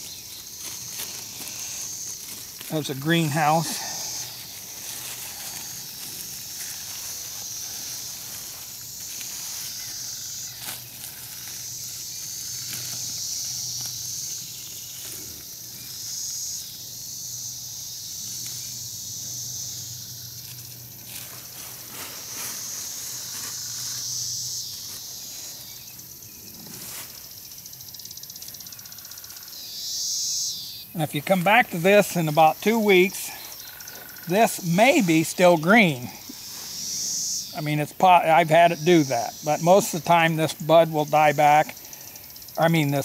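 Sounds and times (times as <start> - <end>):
shrill insect buzz: 0.0 - 43.0.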